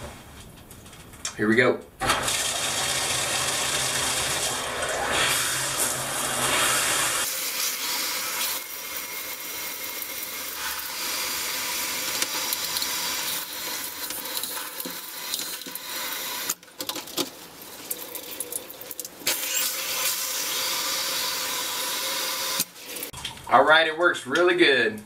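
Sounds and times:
water spraying from shower head: 2.7s - 16.6s, 17.4s - 23.2s.

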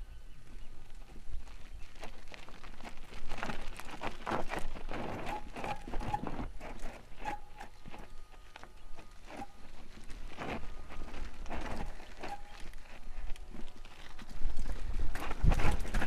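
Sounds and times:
bicycle rattling: 0.4s - 16.0s
tyres crunching on stones: 0.4s - 16.0s
short squeaks: 4.9s - 13.7s.

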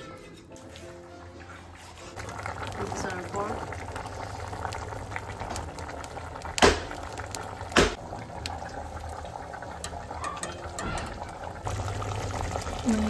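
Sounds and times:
firewood crackling: 0.0s - 13.0s
stew bubbling in a pot: 1.8s - 13.0s
loud sharp pops: 6.6s - 7.0s, 7.7s - 8.0s.

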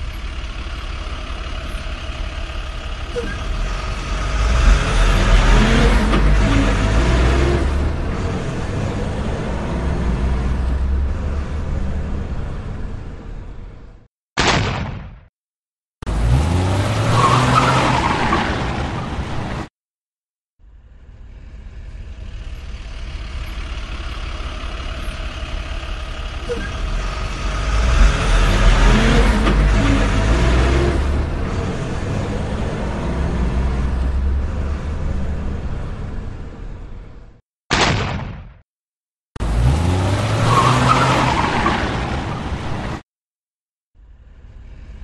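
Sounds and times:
tyre and road noise: 0.0s - 14.8s, 16.0s - 19.7s, 20.6s - 38.2s, 39.4s - 43.1s
pickup truck engine revving: 3.4s - 12.2s, 16.1s - 18.2s, 26.4s - 36.1s, 39.4s - 41.7s.

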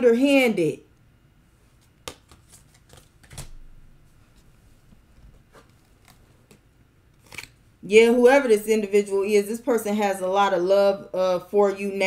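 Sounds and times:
cards being shuffled: 1.7s - 3.6s, 5.2s - 7.6s.

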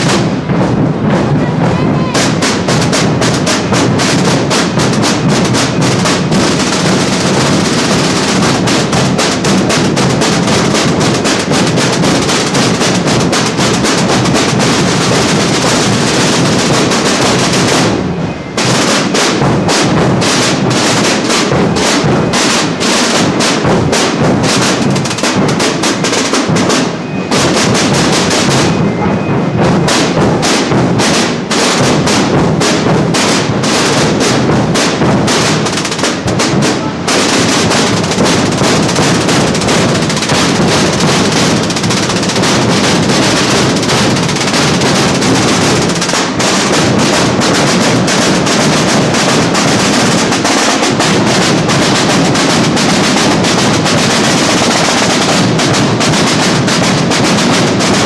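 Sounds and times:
marching drums rolling beat: 0.0s - 58.0s.

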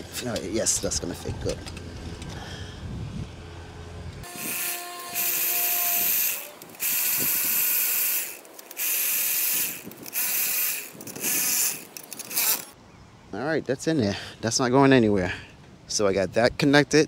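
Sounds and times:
cordless drill driving a screw: 4.2s - 12.8s.

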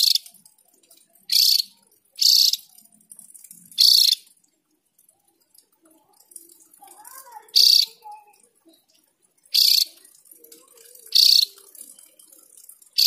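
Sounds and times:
bird giving high-pitched calls: 0.0s - 0.3s, 1.3s - 2.7s, 3.8s - 4.3s, 7.5s - 8.0s, 9.5s - 10.0s, 11.1s - 11.6s.

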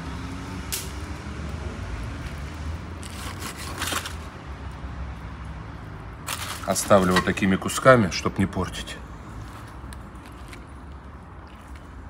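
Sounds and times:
knife scraping through meat: 3.0s - 4.2s.

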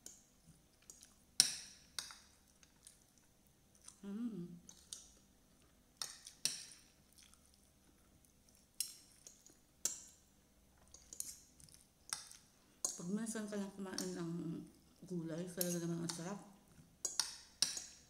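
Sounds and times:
chewing: 0.1s - 1.2s, 2.0s - 4.0s, 4.6s - 10.2s, 10.8s - 13.0s
person humming: 4.0s - 4.6s.

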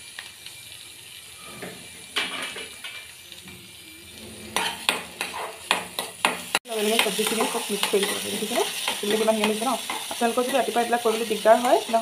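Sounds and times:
onions sizzling in butter: 0.0s - 12.0s
spatula scraping metal pan: 4.0s - 6.4s, 7.0s - 12.0s.

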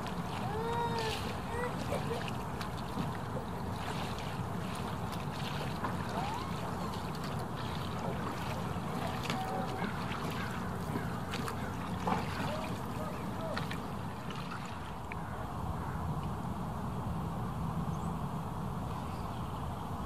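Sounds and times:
water wash: 0.0s - 15.3s
wind: 0.0s - 20.0s.

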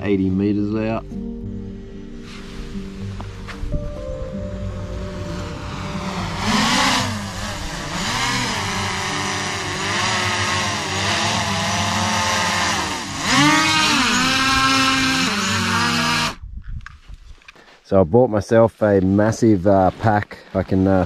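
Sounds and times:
drone propellers whining: 2.7s - 16.4s.

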